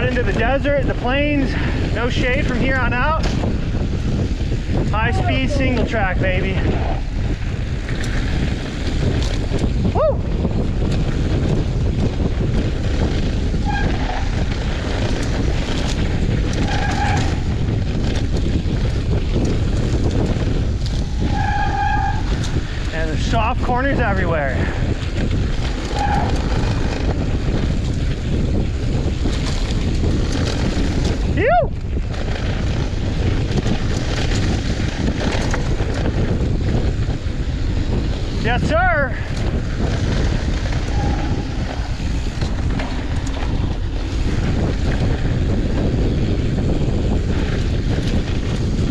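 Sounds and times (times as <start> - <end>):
bike tyres rolling on dirt: 0.0 - 48.9
wind buffeting microphone: 0.0 - 48.9.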